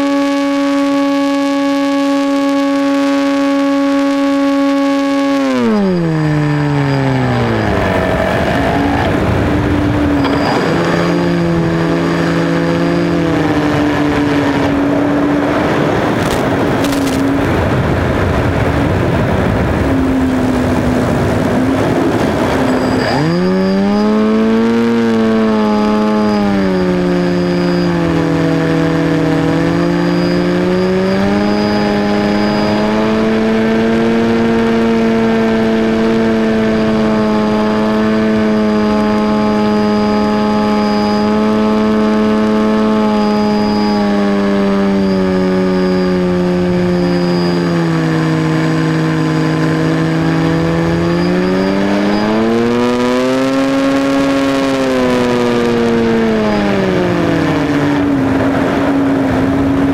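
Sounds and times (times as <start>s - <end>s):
electric motor and propeller: 0.0s - 59.9s
wind rushing past microphone: 6.1s - 24.2s, 43.3s - 59.9s.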